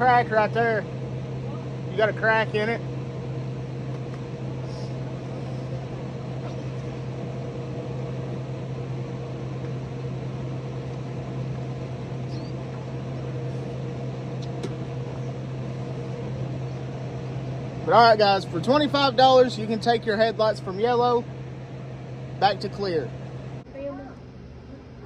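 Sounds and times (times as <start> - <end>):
low machine hum: 0.0 - 25.0.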